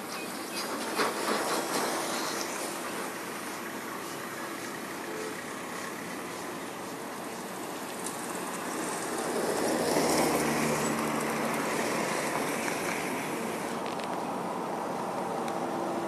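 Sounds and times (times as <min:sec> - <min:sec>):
vehicles passing on road: 0:00.0 - 0:16.0.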